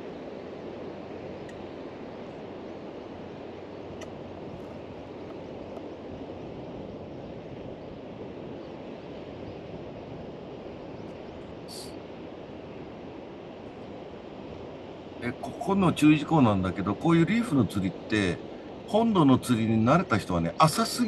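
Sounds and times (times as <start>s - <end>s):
water over shallow reef: 0.0s - 21.0s
wind on microphone: 3.2s - 15.7s.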